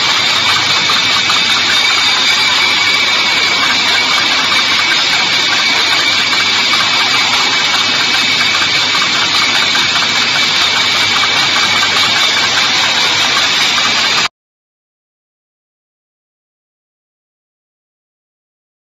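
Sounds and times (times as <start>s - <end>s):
high-pitched machine whines: 0.0s - 14.3s
labeling machine mechanical hum: 0.0s - 14.3s.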